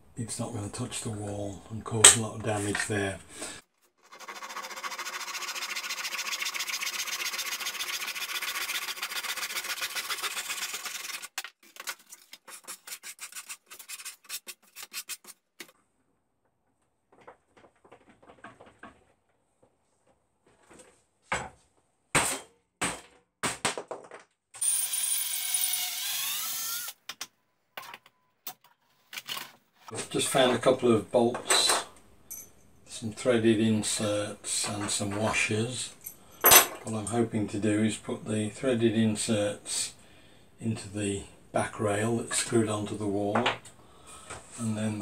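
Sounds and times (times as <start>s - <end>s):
hand tool rasping wood: 4.1s - 15.4s
cordless drill whining: 24.6s - 27.0s.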